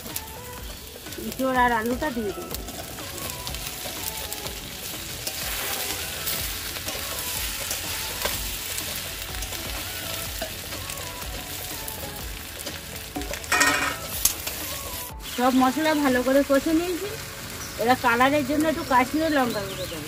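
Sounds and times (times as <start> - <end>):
food sizzling in oil: 0.0 - 20.0
spatula scraping metal pan: 13.2 - 14.6.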